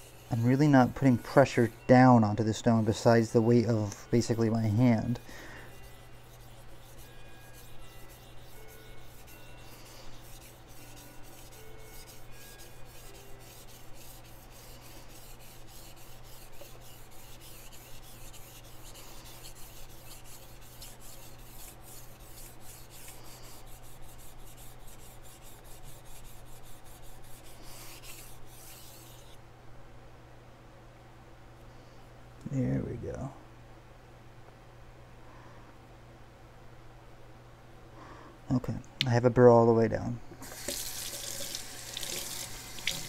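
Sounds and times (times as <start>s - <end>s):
knife scraping on whetstone: 0.0s - 29.4s, 40.4s - 43.0s.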